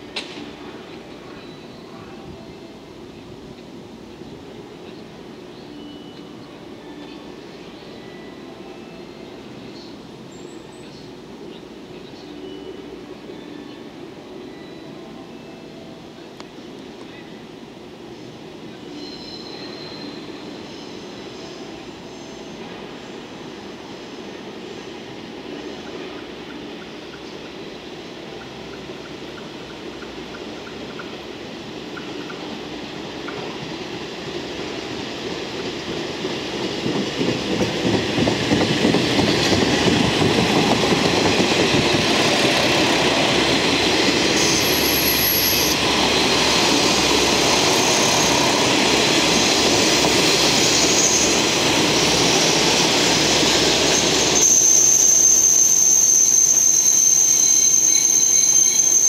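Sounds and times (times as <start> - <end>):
diesel train engine rumble: 0.0 - 55.2
high-pitched metallic squeal: 44.2 - 46.0, 46.6 - 49.6, 50.4 - 59.0.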